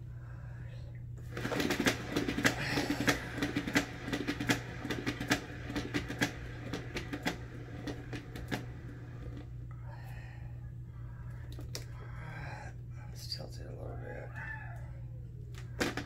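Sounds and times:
turntable clattering and rattling: 1.3s - 9.6s, 15.7s - 16.0s.

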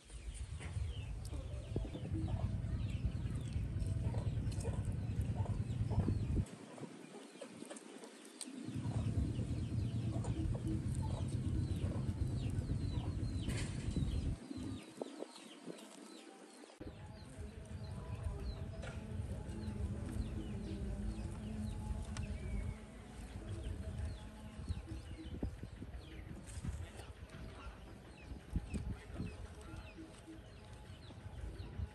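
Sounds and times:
birds chirping: 0.0s - 31.9s
low rumble: 0.4s - 6.5s, 8.7s - 14.8s, 16.9s - 31.9s
chickens clucking: 0.6s - 16.4s.

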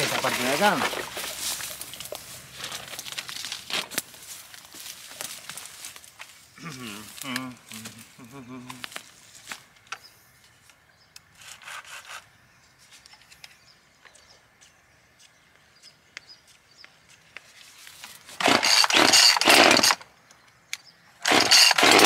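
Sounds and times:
chainsaw handling clicks: 18.4s - 20.0s, 20.7s - 22.0s
chainsaw running in bursts: 18.4s - 20.0s, 21.2s - 22.0s.

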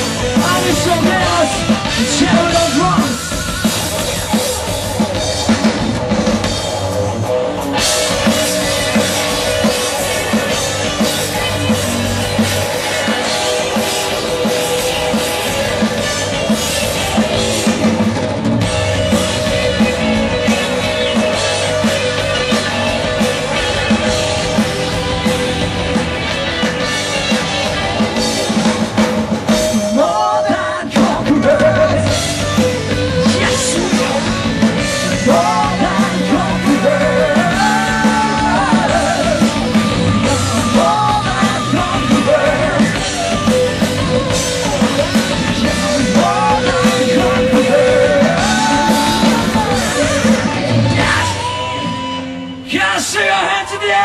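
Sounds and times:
drum kit: 0.0s - 54.0s
live rock band: 0.0s - 54.0s
person singing: 29.8s - 32.4s, 33.2s - 54.0s.

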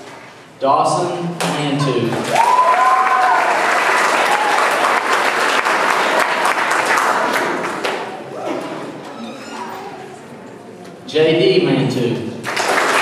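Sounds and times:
person calling out: 1.6s - 2.2s
audience applauding: 2.2s - 8.2s, 12.4s - 13.0s.

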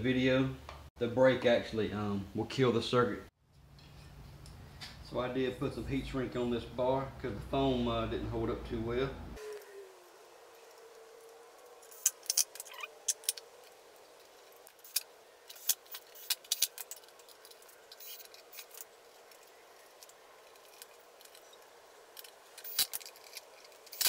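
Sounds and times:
metal parts clicking and tapping: 11.8s - 24.0s.

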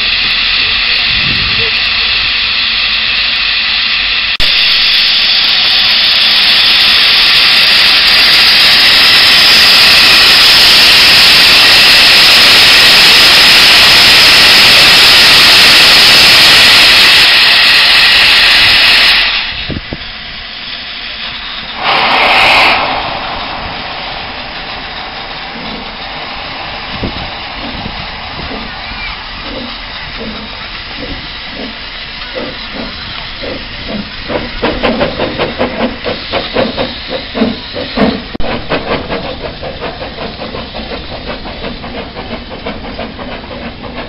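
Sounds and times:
steam locomotive venting steam: 0.0s - 44.0s.

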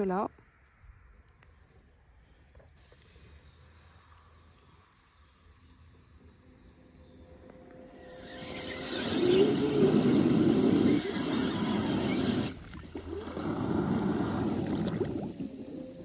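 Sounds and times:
pool cleaner motor running: 8.2s - 12.6s
water churning and splashing: 9.4s - 16.0s.

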